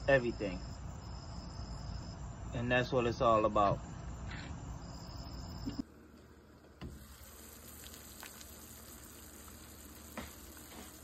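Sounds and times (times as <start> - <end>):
high insect tone: 0.0 - 5.8, 7.1 - 11.0
potatoes simmering in a pan: 6.9 - 11.0.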